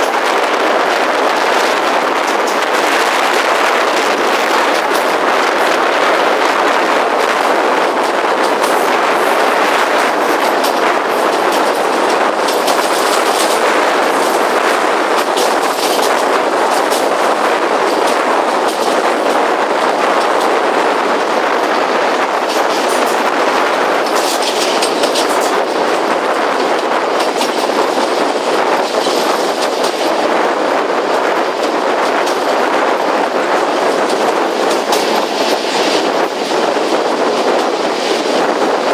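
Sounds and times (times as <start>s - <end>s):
train rolling along track: 0.0s - 38.9s
wheels clicking over rails: 0.0s - 38.9s.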